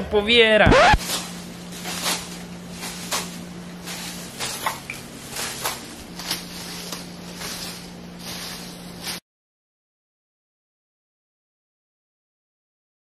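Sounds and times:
low steady hum: 0.0 - 9.2.

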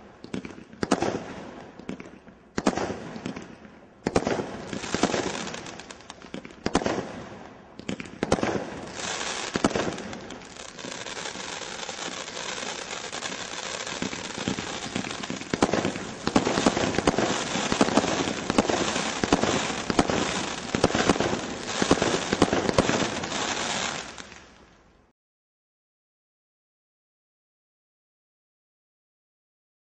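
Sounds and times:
firework hissing crackle: 4.6 - 6.4, 8.2 - 24.6
firework shot and burst reports: 8.2 - 24.2.

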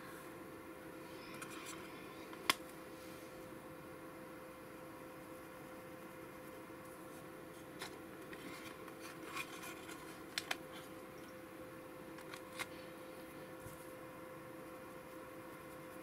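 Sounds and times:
steady low hum: 0.0 - 16.0
art supplies clicking and tapping: 7.8 - 10.6.

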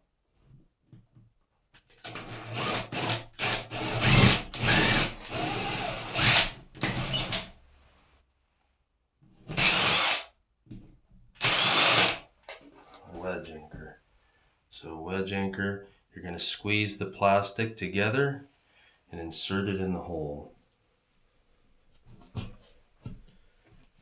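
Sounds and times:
cordless drill boring drywall: 1.9 - 7.6, 9.5 - 10.3, 11.4 - 12.3.

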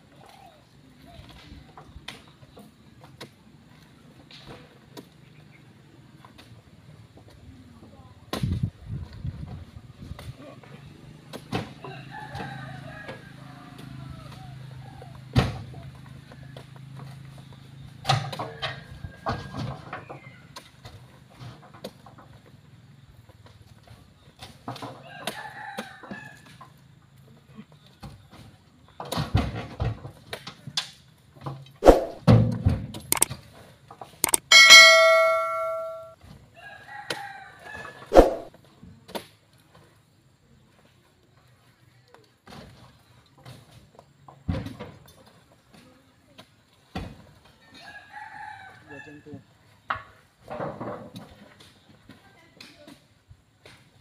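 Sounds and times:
mouse click: 34.2 - 34.5
bright bell ding: 34.2 - 36.2
faint wavering call: 34.5 - 36.1.

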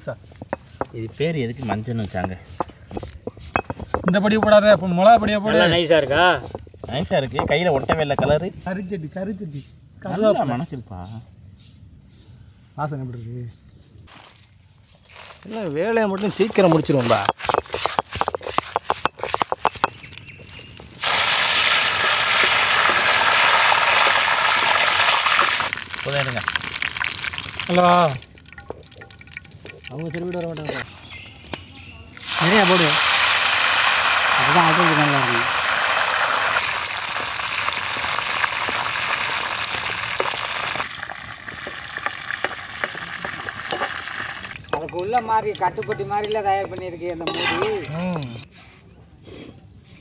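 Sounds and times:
oil crackling and popping: 15.1 - 48.4
leaves sizzling in hot oil: 19.9 - 31.2, 32.2 - 47.6.

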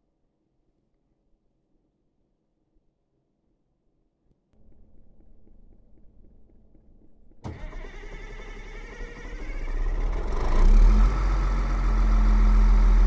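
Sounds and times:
diesel engine starting and running: 4.6 - 13.0.

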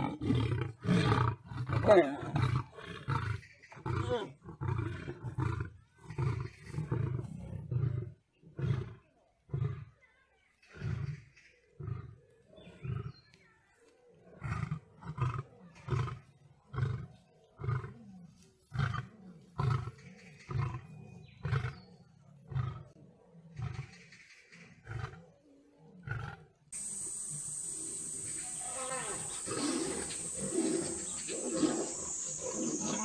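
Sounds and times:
lion roaring in deep grunts: 18.7 - 24.0, 29.2 - 33.0.

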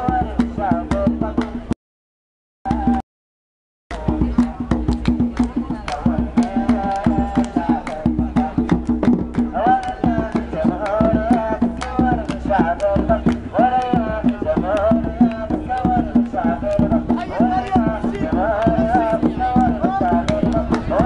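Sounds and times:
group singing a sliding melody: 2.7 - 3.0, 5.9 - 21.0.

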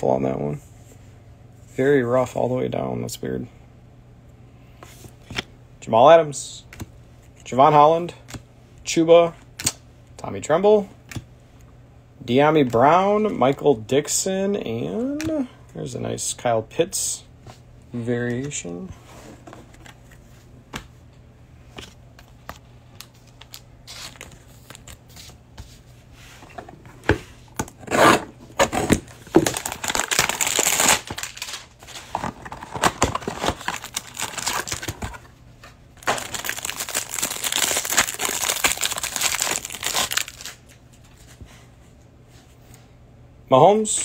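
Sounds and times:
plastic wrapper crinkling and tearing: 29.4 - 35.2, 36.0 - 40.8.

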